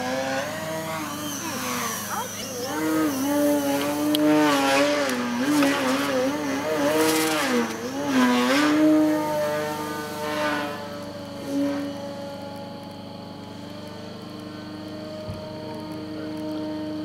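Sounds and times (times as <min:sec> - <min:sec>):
drone propellers buzzing: 0:00.0 - 0:17.0.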